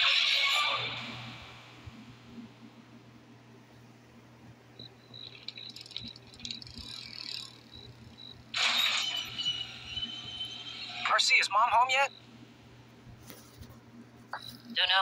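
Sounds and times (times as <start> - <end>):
crickets chirping: 4.8 - 10.8.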